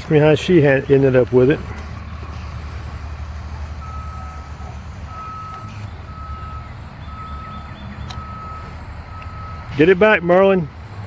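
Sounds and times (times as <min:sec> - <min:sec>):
reversing alarm beeping: 0:03.8 - 0:09.8.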